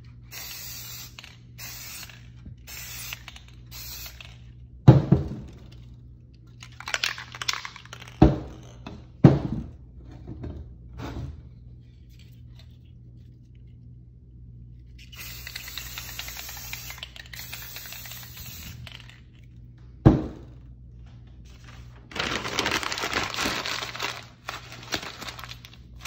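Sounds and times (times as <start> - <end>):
steady low hum: 0.0 - 26.0
aerosol spray can hissing: 0.3 - 4.2, 15.1 - 18.9
sharp knocks and thuds: 8.2 - 9.8, 20.0 - 20.5.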